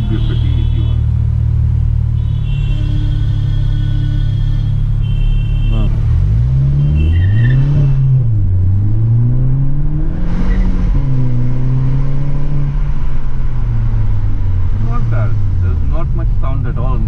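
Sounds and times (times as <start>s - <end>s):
car engine accelerating: 5.8s - 17.0s.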